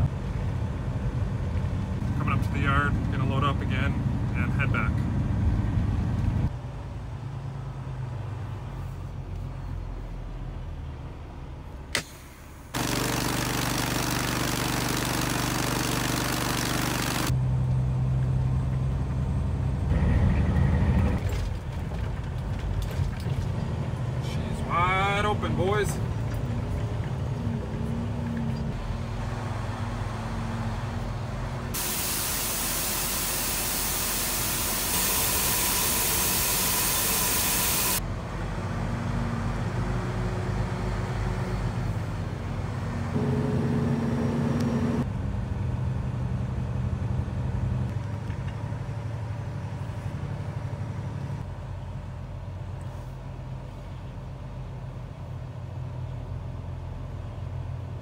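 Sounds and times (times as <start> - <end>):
diesel truck engine running: 0.0 - 58.0
loud steady hiss: 31.8 - 38.0.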